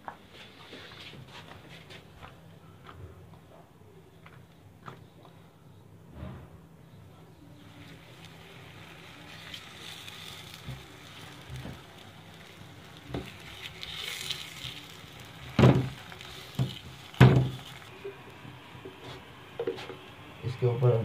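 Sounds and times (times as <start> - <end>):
flatbread hissing on griddle: 7.7 - 18.0.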